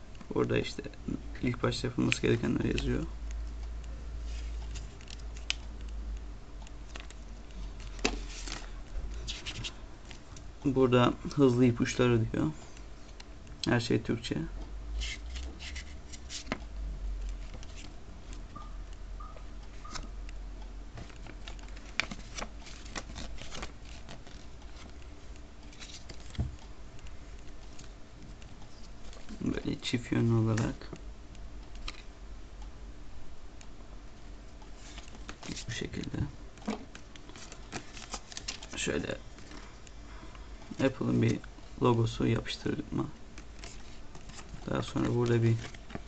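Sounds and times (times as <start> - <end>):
low steady hum: 0.0 - 46.0
paper rustling: 3.6 - 6.0, 6.8 - 10.4, 15.0 - 16.6, 17.2 - 18.5, 20.9 - 29.8, 34.8 - 39.8, 40.7 - 46.0.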